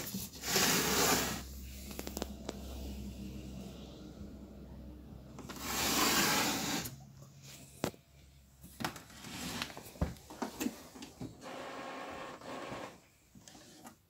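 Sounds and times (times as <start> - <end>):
rubbing scrape: 0.0 - 1.5, 5.6 - 7.0.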